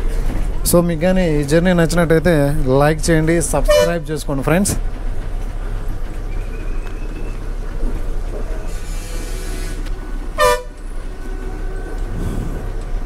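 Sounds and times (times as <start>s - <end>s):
bus engine running: 0.0s - 13.0s
bus horn toot: 3.6s - 4.1s, 8.8s - 10.9s
air brake hiss: 8.6s - 9.9s.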